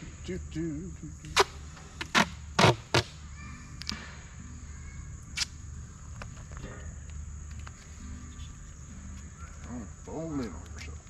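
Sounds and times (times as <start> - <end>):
duct tape ripping: 1.4 - 3.2, 5.3 - 5.6.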